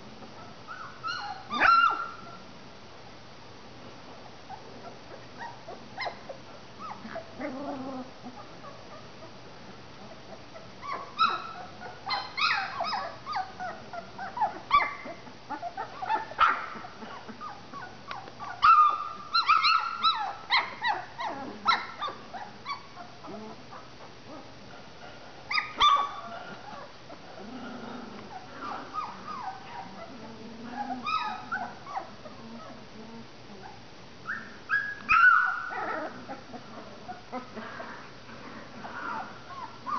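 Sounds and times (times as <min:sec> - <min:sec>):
puppies whimpering and yipping: 0:00.7 - 0:02.4, 0:04.5 - 0:09.3, 0:10.3 - 0:24.0, 0:25.5 - 0:27.4, 0:28.3 - 0:32.8, 0:33.6 - 0:37.6, 0:39.1 - 0:39.9.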